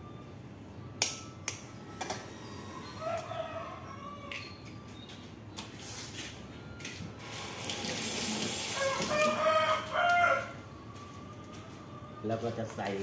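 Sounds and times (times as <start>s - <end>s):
rooster crowing: 2.6s - 4.5s, 8.6s - 11.7s.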